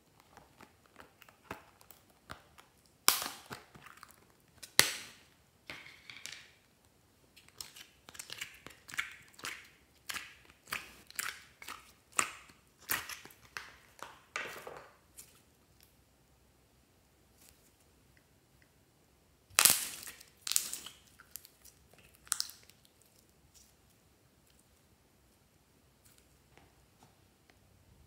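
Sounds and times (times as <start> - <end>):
slime crackling and squelching: 19.5 - 23.8.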